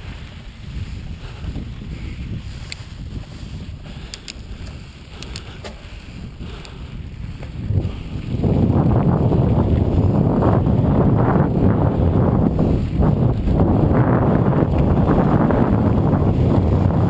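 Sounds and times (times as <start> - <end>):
bike tyre rumble on dirt: 0.0 - 17.0
wind buffeting microphone: 0.0 - 17.0
sharp ticks and rattles: 1.2 - 11.7.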